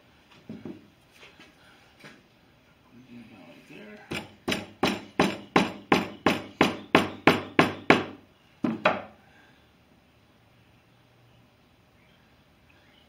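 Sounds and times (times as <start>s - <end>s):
mallet knocking: 4.1s - 9.1s.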